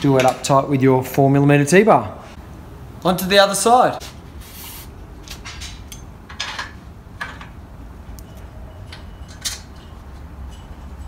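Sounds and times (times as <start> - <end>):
metal clinks: 8.2 - 11.0.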